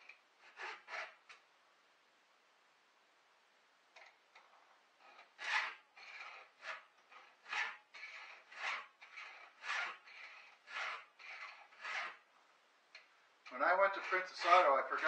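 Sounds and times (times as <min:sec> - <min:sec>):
file rasping on chainsaw chain: 0:00.0 - 0:01.3, 0:05.0 - 0:12.2, 0:13.5 - 0:15.0.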